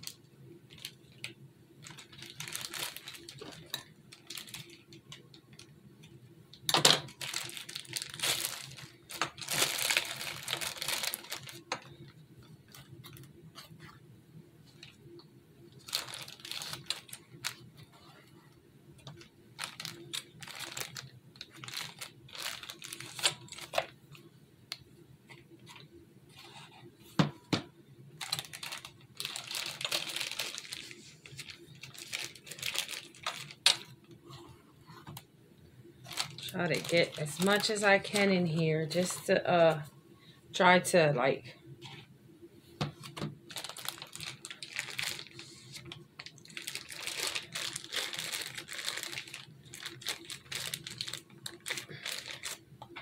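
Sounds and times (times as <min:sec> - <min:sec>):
plastic bag crinkling: 0:00.0 - 0:05.7, 0:06.6 - 0:14.0, 0:15.7 - 0:18.0, 0:19.0 - 0:24.0, 0:28.2 - 0:34.2, 0:36.0 - 0:39.8, 0:42.9 - 0:53.0.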